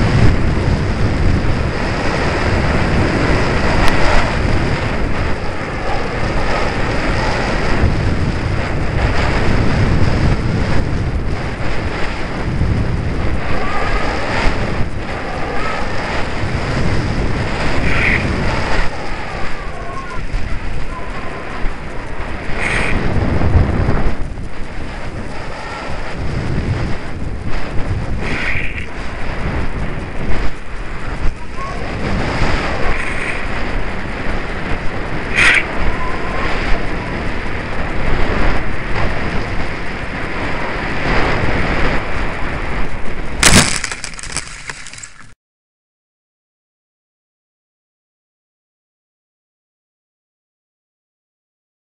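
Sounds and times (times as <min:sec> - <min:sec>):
wind buffeting microphone: 0:00.0 - 0:45.3.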